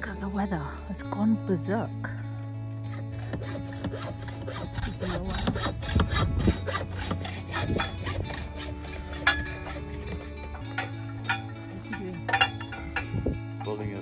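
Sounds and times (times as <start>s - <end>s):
saw rasping strokes: 2.8s - 13.6s.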